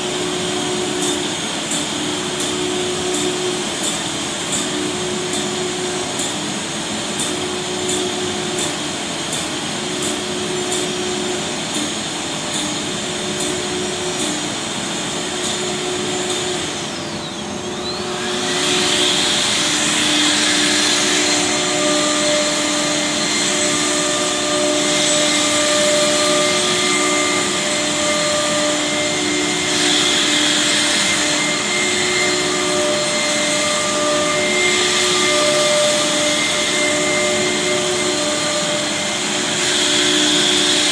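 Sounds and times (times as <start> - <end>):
router spindles whining: 9.6 - 40.9.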